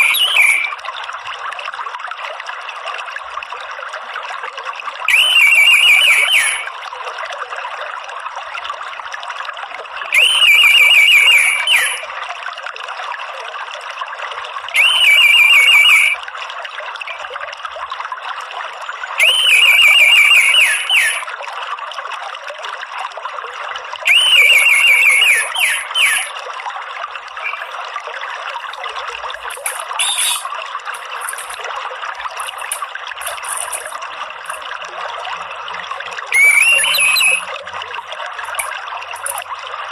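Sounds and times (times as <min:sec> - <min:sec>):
bird chirps: 0:00.0 - 0:00.8, 0:05.1 - 0:06.7, 0:10.2 - 0:12.0, 0:14.8 - 0:16.2, 0:19.2 - 0:21.2, 0:24.1 - 0:26.3, 0:29.9 - 0:30.5, 0:36.4 - 0:37.5
bird trilled call: 0:00.0 - 0:00.8, 0:05.1 - 0:06.7, 0:10.2 - 0:12.1, 0:14.8 - 0:16.2, 0:19.2 - 0:21.3, 0:24.1 - 0:26.4, 0:27.4 - 0:27.7, 0:29.7 - 0:30.5, 0:36.3 - 0:37.5
water trickling: 0:00.0 - 0:39.9.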